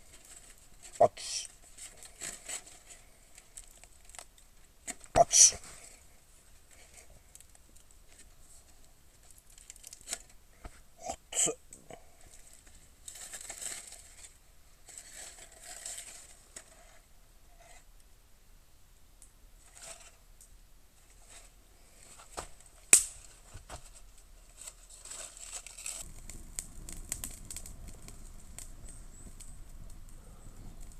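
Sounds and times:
aluminium foil crinkling and tearing: 0.0 - 5.0, 9.2 - 10.4, 12.3 - 16.5, 22.8 - 28.2.

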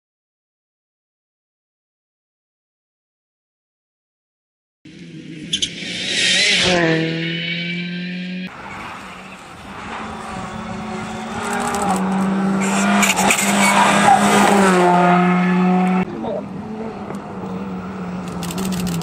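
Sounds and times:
rally car engines revving: 4.9 - 19.0.

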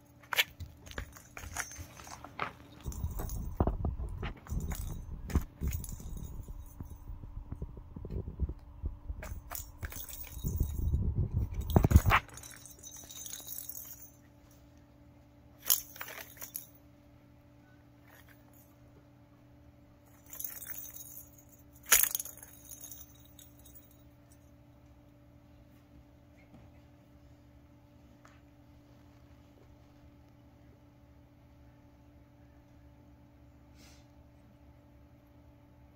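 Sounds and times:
bell ball jingling: 0.0 - 7.3, 9.2 - 14.3, 15.6 - 16.8, 20.1 - 24.4.

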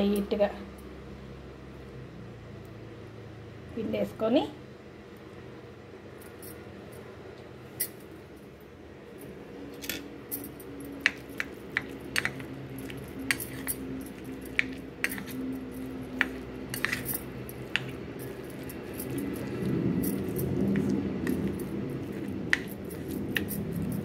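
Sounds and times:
spoon clinking against a bowl: 9.8 - 24.0.

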